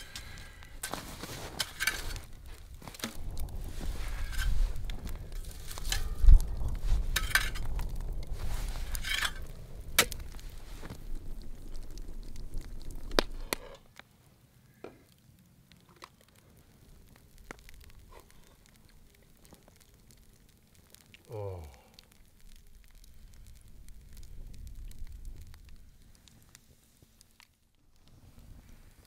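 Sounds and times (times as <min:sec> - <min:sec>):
fire crackling: 0:00.0 - 0:29.0
metal clinks and scrapes: 0:00.8 - 0:02.3
low rumble: 0:02.2 - 0:13.6.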